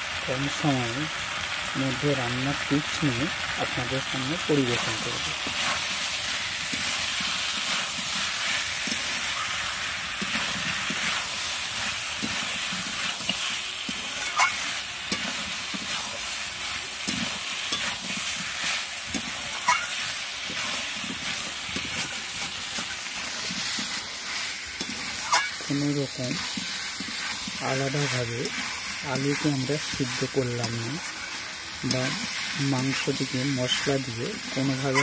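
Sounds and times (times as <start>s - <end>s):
curry sizzling in a pan: 0.0s - 35.0s
metal spatula scraping pan: 10.2s - 16.2s, 17.0s - 25.6s, 34.6s - 35.0s.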